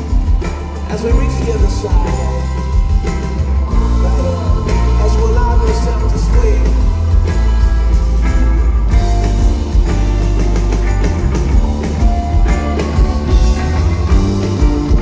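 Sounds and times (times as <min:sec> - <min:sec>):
person singing: 0:00.0 - 0:07.9
live rock band playing: 0:00.0 - 0:15.0.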